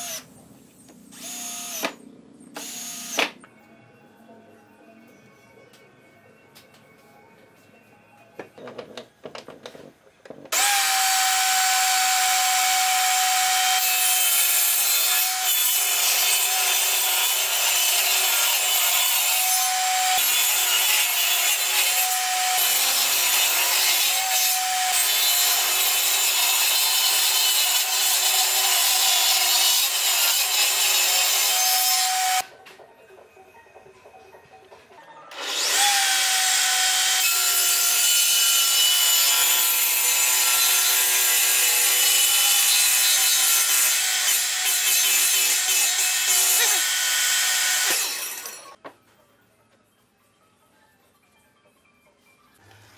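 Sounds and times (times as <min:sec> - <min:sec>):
table saw cutting wood: 0:10.5 - 0:32.4, 0:35.3 - 0:48.8.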